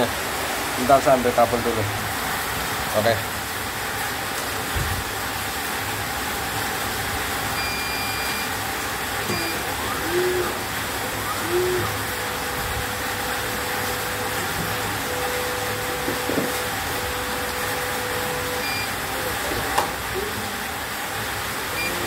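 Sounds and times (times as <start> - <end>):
electronic beeps: 7.6 - 8.5, 18.6 - 18.9.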